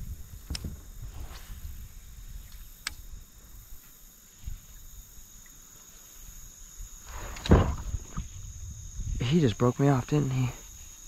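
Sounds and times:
high-pitched insect drone: 0.0 - 11.0
sharp click: 2.5 - 3.0.

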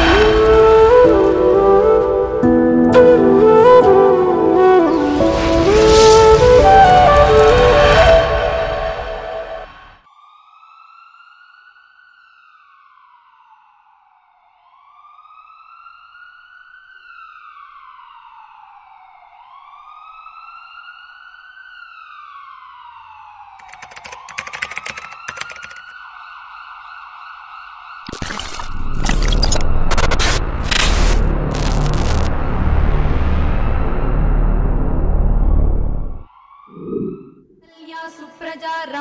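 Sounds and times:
emergency vehicle siren wailing: 0.0 - 23.7
keyboard typing clicks: 23.6 - 25.9.

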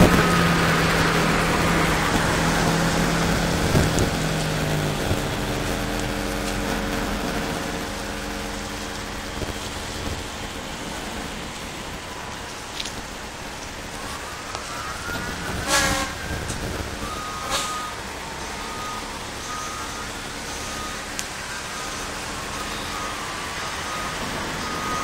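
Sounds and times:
steady rushing noise: 0.0 - 19.3
diesel engine idling: 0.0 - 25.0.

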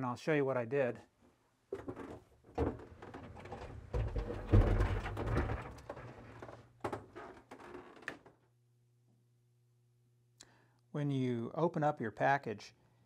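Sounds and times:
revolving door knocking and rumbling: 3.8 - 5.8.

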